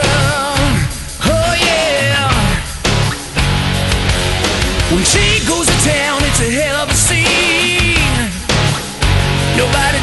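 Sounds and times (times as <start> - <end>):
hard rock song: 0.0 - 10.0.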